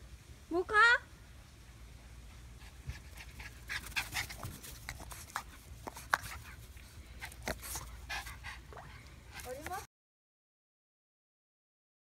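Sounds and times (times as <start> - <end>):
dog panting hard: 2.6 - 9.9.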